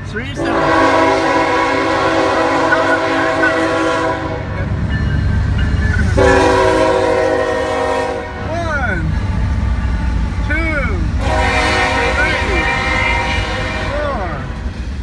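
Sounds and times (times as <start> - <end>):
locomotives rumbling: 0.0 - 15.0
locomotive air horn: 0.4 - 4.6, 6.1 - 8.4, 11.2 - 14.5.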